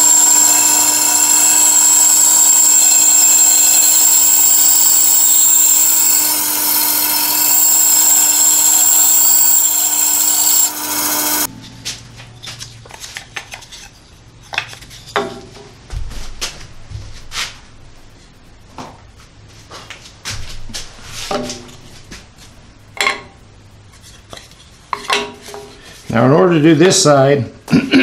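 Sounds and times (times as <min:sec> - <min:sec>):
bandsaw cutting wood with high whine: 0:00.0 - 0:11.5.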